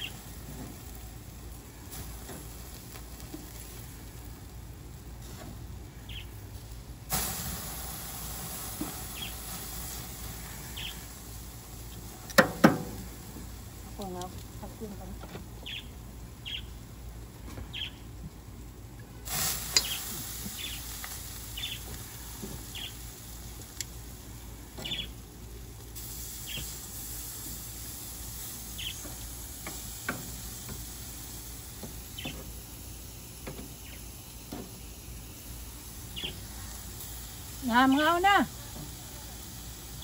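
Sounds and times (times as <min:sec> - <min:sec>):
meat sizzling on a grill: 0:00.0 - 0:40.0
bird chirping: 0:06.0 - 0:06.3, 0:10.8 - 0:11.0, 0:15.6 - 0:16.8, 0:17.7 - 0:18.0, 0:21.6 - 0:21.9, 0:22.7 - 0:23.0, 0:24.8 - 0:25.1, 0:28.8 - 0:29.1, 0:32.1 - 0:32.4, 0:36.1 - 0:36.4.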